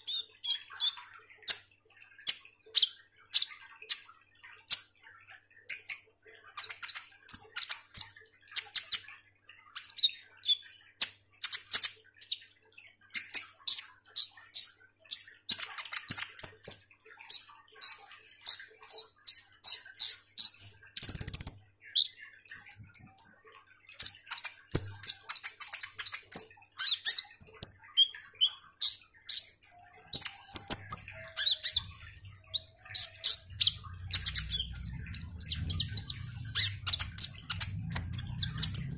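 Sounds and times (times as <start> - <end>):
bird chirping and trilling: 0.0 - 1.6, 13.2 - 38.9.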